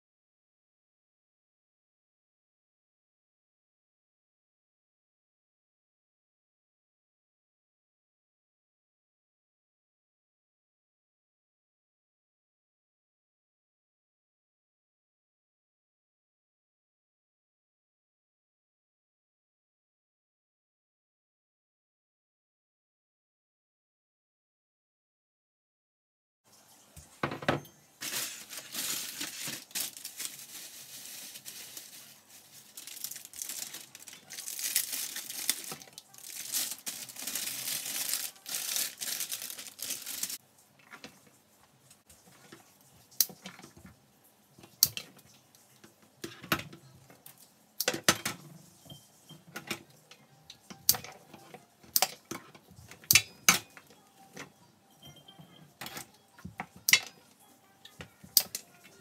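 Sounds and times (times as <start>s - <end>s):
wrapping crinkling and tearing: 28.0s - 40.4s.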